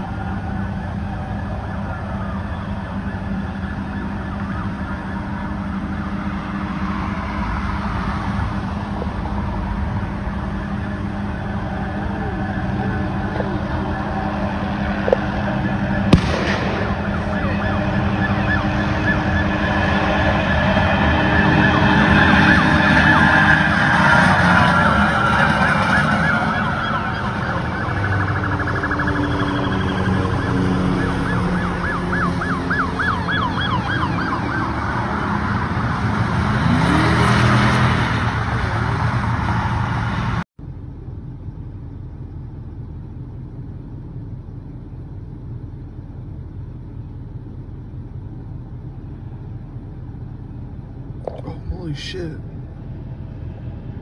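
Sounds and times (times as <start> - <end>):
police sirens wailing and yelping: 0.0 - 40.2
highway traffic hum: 0.0 - 54.0.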